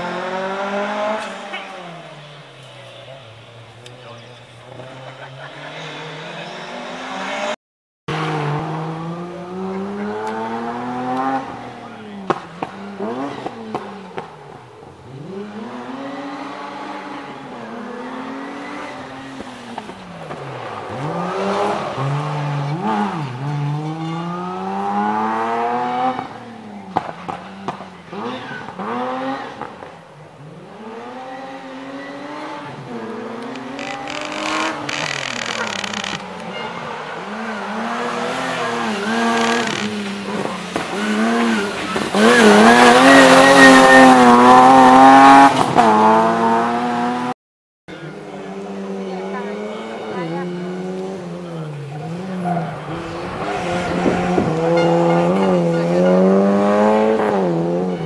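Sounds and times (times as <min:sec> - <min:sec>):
rally car engines revving: 0:00.0 - 0:58.0
tyres squealing: 0:33.4 - 0:44.8.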